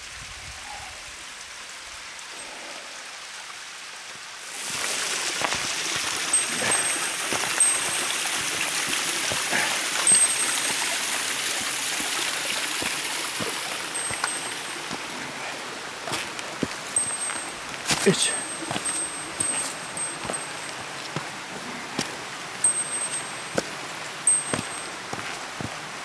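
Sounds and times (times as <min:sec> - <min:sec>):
stream rushing over rocks: 0:00.0 - 0:26.0
footsteps on dry leaves: 0:04.5 - 0:09.7, 0:10.4 - 0:23.8, 0:24.4 - 0:25.8.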